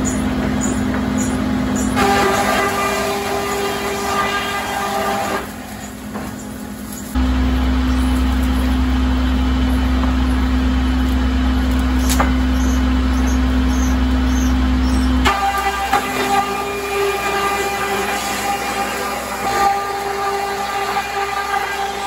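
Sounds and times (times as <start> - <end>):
sawmill machinery running: 0.0 - 22.0.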